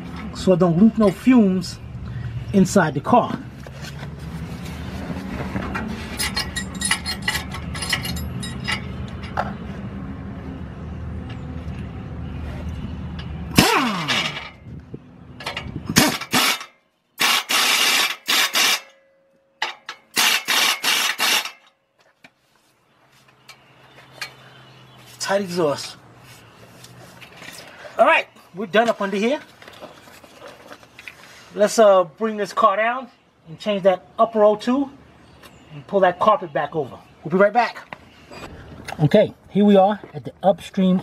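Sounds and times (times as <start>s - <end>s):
ratchet clicking: 20.2s - 21.6s.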